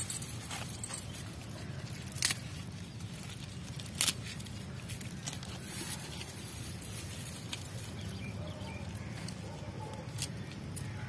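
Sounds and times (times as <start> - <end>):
bangles clinking: 0.0 - 2.5.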